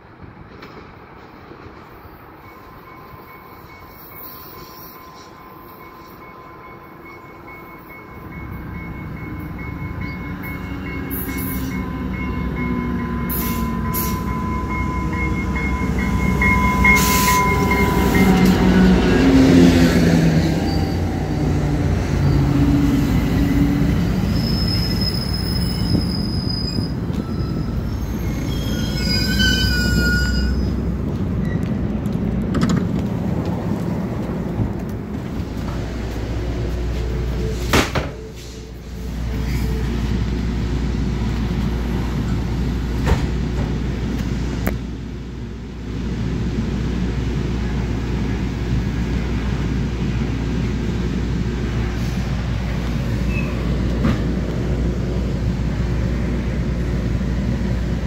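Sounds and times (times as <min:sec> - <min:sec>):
low rumble of train: 0:00.0 - 0:58.0
wheels and brakes squealing: 0:02.0 - 0:06.4, 0:20.4 - 0:21.2, 0:22.0 - 0:22.9, 0:23.5 - 0:31.7, 0:53.1 - 0:53.8
locomotive engine passing: 0:08.2 - 0:37.7.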